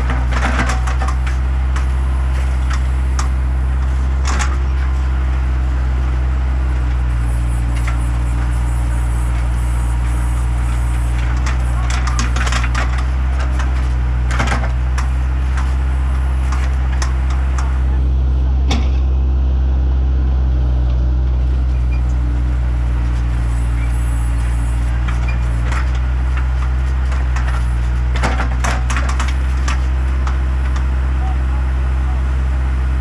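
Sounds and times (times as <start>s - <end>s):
diesel engine running: 0.0s - 33.0s
clanks and knocks: 25.0s - 30.9s.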